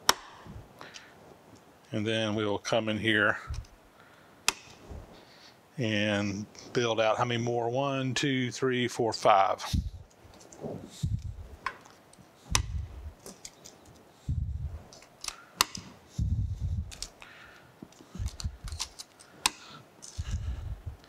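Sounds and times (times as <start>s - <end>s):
plastic blocks snapping onto rail: 0.0s - 0.4s.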